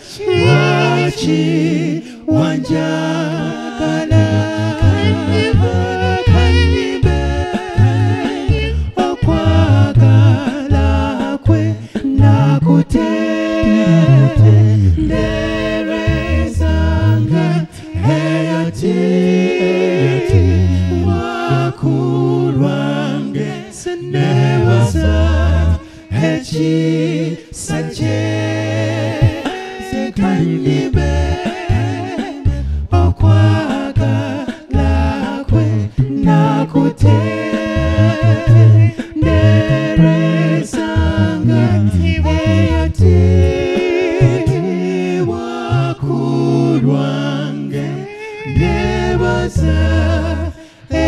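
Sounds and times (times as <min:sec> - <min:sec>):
male group singing in harmony: 0:00.0 - 0:51.0
bass voice holding low notes: 0:00.2 - 0:18.9, 0:24.0 - 0:26.3, 0:30.2 - 0:51.0.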